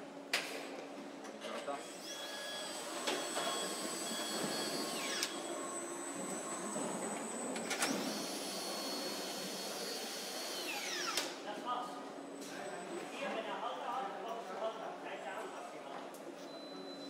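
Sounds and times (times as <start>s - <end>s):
high machinery whines: 1.8s - 11.4s.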